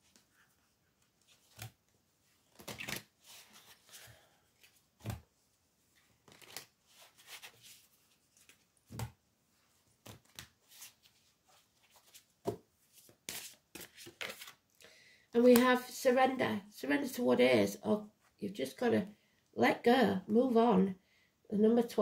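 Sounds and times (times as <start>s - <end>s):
cards shuffling: 1.0s - 1.8s, 2.4s - 5.2s, 6.2s - 9.2s, 10.0s - 14.6s.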